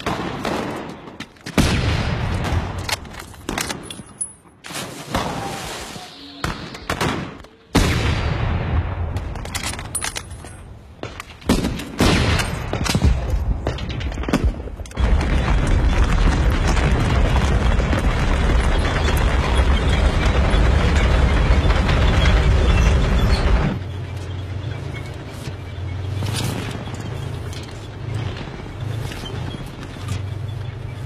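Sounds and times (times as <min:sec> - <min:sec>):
explosions: 0:05.1 - 0:09.4, 0:11.0 - 0:23.8.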